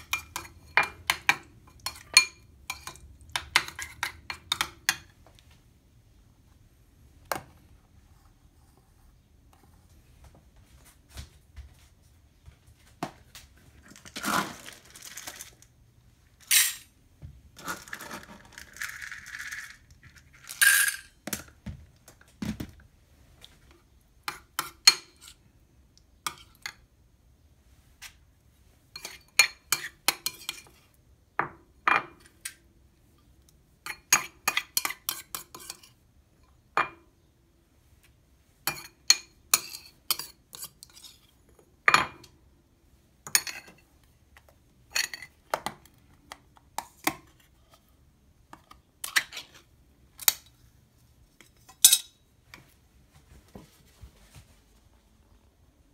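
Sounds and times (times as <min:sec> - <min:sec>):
metal spoon clinking and scraping bowls: 0:00.0 - 0:05.2, 0:16.4 - 0:16.9, 0:17.6 - 0:21.2, 0:24.3 - 0:25.4, 0:28.9 - 0:30.9, 0:33.9 - 0:37.0, 0:38.7 - 0:42.4, 0:43.2 - 0:43.9, 0:44.9 - 0:45.8, 0:48.5 - 0:50.5, 0:51.4 - 0:52.2
kibble rattling into steel bowls: 0:13.8 - 0:15.7, 0:17.6 - 0:21.2.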